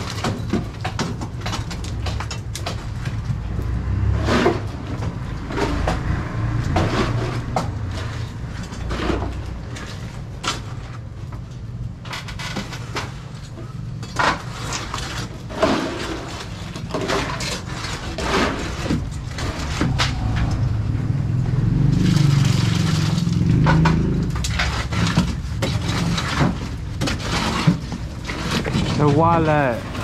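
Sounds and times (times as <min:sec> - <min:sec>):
concrete scraping and crunching: 0:00.0 - 0:30.0
steady low hum: 0:18.8 - 0:23.6
rushing noise: 0:18.8 - 0:24.4.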